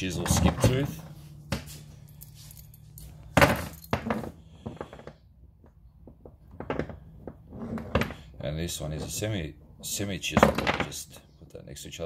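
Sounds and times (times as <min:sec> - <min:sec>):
chain links rattling and clinking: 0:01.9 - 0:04.5.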